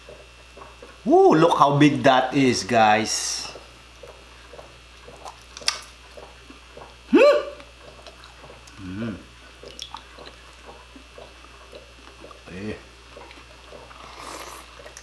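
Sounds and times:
people chewing food: 0:00.0 - 0:01.2, 0:03.1 - 0:15.0
rising vocal exclamation: 0:01.1 - 0:01.4, 0:07.1 - 0:07.6
person humming mm: 0:07.1 - 0:07.6, 0:08.7 - 0:09.3.

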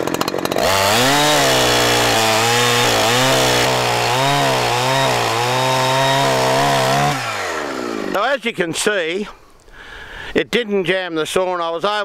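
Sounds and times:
chainsaw cutting through log: 0:00.0 - 0:08.2.

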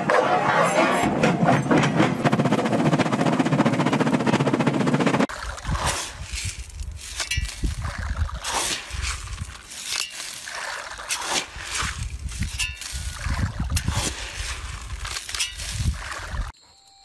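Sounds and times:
wind rumble on microphone: 0:05.3 - 0:09.6, 0:11.5 - 0:16.5
grain pattering onto water: 0:05.3 - 0:16.5.

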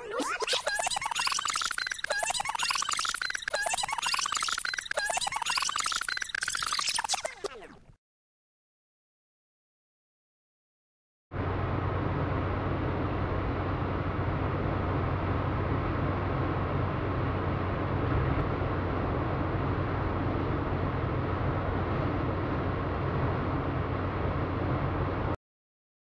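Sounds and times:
low hum: 0:11.4 - 0:25.4.

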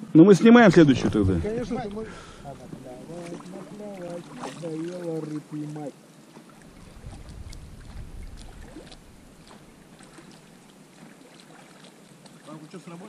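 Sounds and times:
wind rumbling on microphone: 0:00.7 - 0:03.9, 0:06.6 - 0:10.8
oars splashing water: 0:00.8 - 0:13.0.

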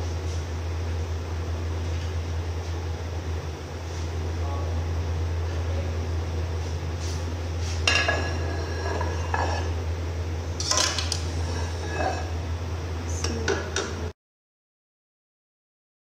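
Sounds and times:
steady low hum: 0:00.0 - 0:14.2
metal spoon scraping a pot: 0:07.9 - 0:09.8, 0:10.6 - 0:12.3.

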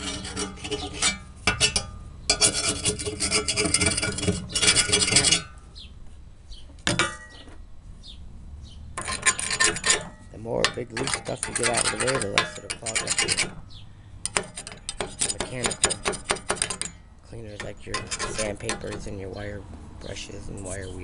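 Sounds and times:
scraper blade scraping rust off steel: 0:00.0 - 0:05.6, 0:09.0 - 0:19.4.

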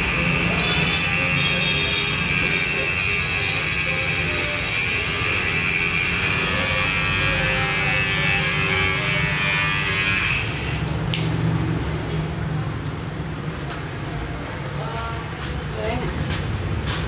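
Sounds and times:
electric massager buzzing: 0:00.1 - 0:11.0.

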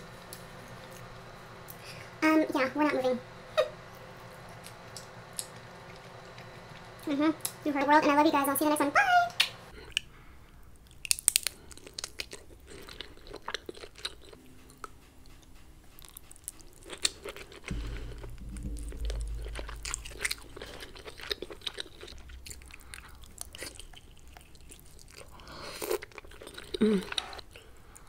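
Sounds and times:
low rumble: 0:00.0 - 0:08.4, 0:17.7 - 0:24.8
close chewing and biting: 0:10.8 - 0:17.7, 0:20.6 - 0:28.0.

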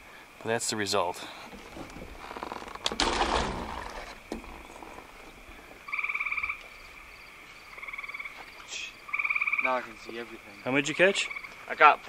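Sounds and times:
frog trilling: 0:03.6 - 0:11.8.

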